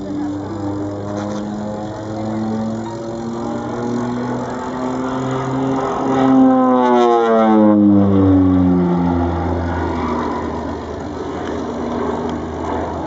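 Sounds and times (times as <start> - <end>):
propeller aircraft passing: 0.0 - 13.0.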